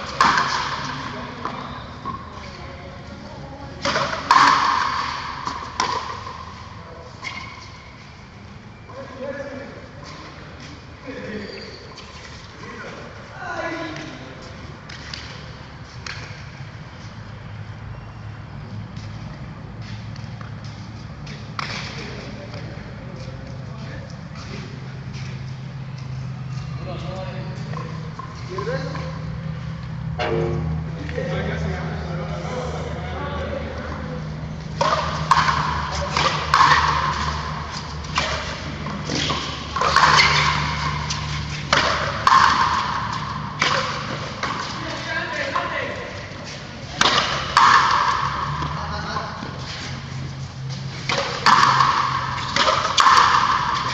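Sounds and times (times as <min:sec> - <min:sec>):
ball bouncing on concrete: 0:00.1 - 0:02.3, 0:03.8 - 0:06.6, 0:19.8 - 0:22.7, 0:34.7 - 0:44.8, 0:46.9 - 0:49.6, 0:51.0 - 0:53.9.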